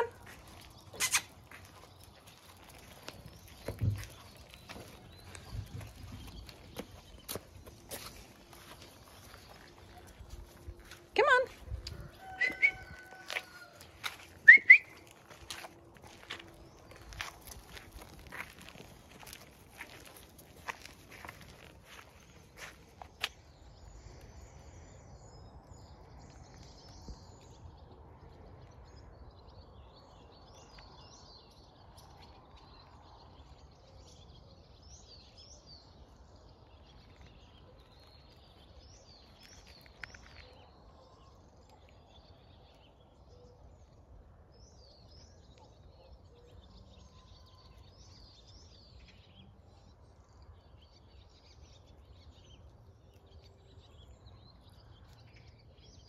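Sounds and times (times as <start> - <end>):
faint birds chirping: 0.0 - 56.0.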